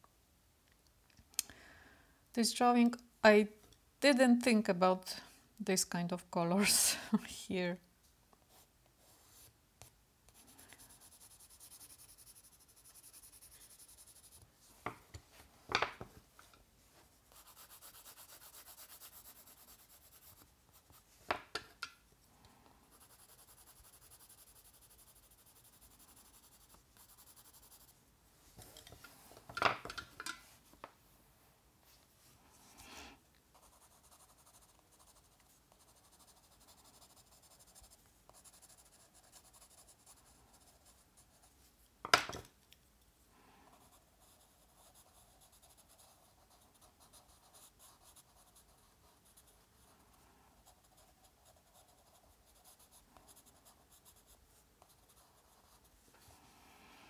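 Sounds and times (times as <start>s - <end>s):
pencil scratching on paper: 10.3s - 14.4s, 17.3s - 21.0s, 22.9s - 28.0s, 33.5s - 41.5s, 43.8s - 50.0s, 50.6s - 55.9s.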